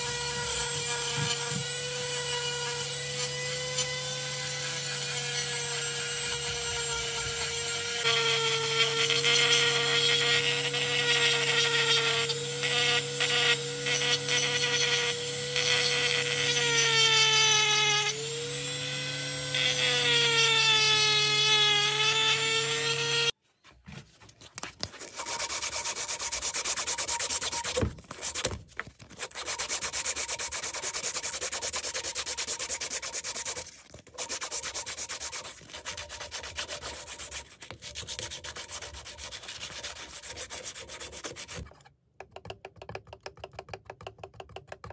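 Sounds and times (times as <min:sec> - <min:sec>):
rotary tool sanding wood: 0:00.0 - 0:23.4, 0:25.0 - 0:41.9
sandpaper rubbing on wood: 0:25.0 - 0:28.6, 0:29.2 - 0:41.7.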